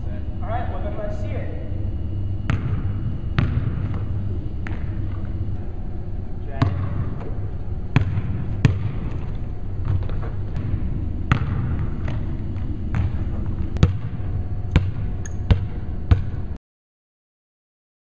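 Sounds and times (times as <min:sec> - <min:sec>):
low background rumble: 0:00.0 - 0:16.6
basketball bouncing on wooden floor: 0:02.5 - 0:05.3, 0:06.6 - 0:16.4.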